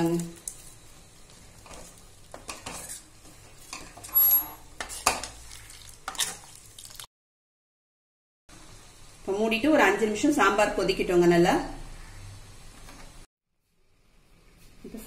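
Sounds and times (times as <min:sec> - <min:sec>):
ladle clinking and scraping pan: 0:01.7 - 0:05.4.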